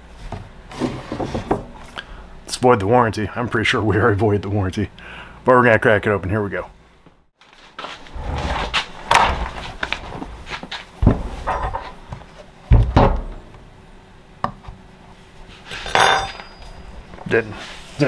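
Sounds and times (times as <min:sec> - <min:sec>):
rubbing and scraping on wood: 0:07.5 - 0:12.5
loud thuds on workbench: 0:12.7 - 0:13.4.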